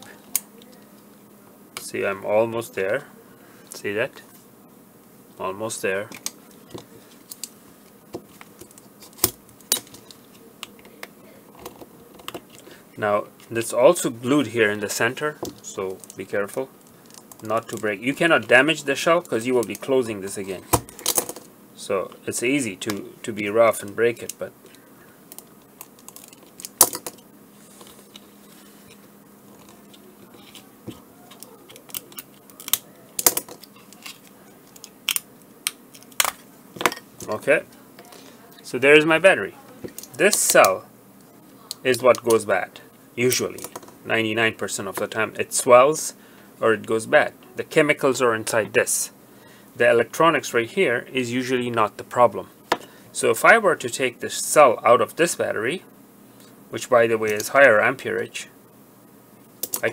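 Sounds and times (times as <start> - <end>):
blade cutting plastic snaps: 31.3 - 36.4.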